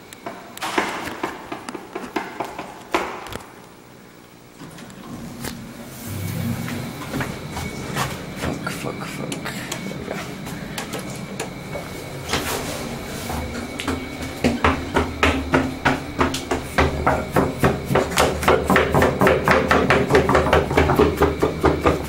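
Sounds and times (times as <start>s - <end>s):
low steady hum: 3.8s - 17.9s.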